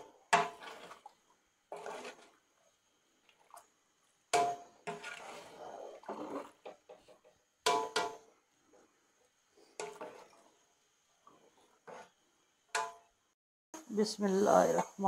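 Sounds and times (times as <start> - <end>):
metal pot clanking: 0.0 - 1.1, 1.7 - 2.4, 4.3 - 8.3, 9.6 - 10.5, 12.7 - 13.1.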